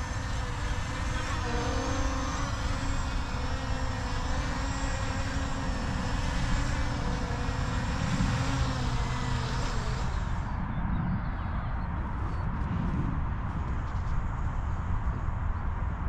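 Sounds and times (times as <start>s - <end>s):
faint steady hum: 0.0s - 12.6s
wind buffeting microphone: 0.0s - 16.0s.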